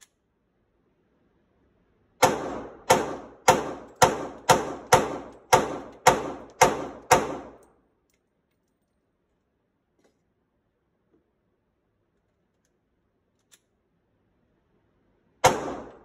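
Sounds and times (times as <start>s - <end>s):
pistol shots echoing indoors: 2.2s - 7.8s, 15.4s - 16.0s.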